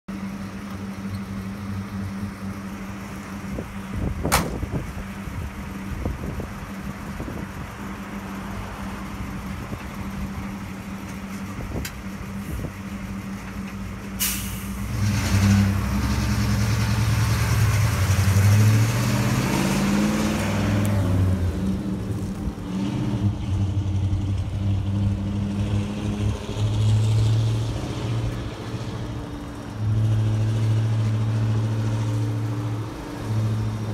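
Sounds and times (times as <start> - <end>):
truck engine idling and revving: 0.1 - 33.9
air brakes releasing hiss: 14.2 - 14.8.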